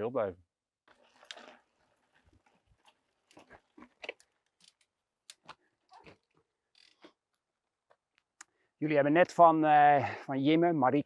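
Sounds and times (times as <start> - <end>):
bike tyres on loose dirt: 0.9 - 4.8
bike rattling: 0.9 - 4.9, 5.9 - 7.1.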